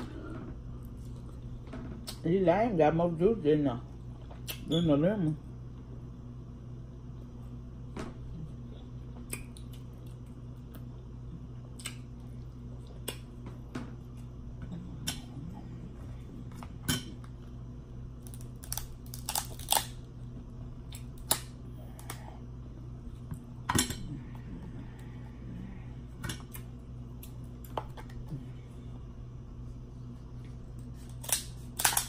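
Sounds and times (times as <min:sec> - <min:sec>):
low hum: 0:00.0 - 0:32.0
crab shells and shears clicking: 0:18.2 - 0:20.0.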